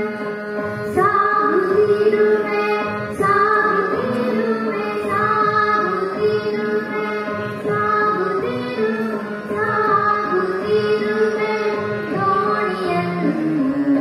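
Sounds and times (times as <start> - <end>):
person singing devotional song: 7.7 - 14.0.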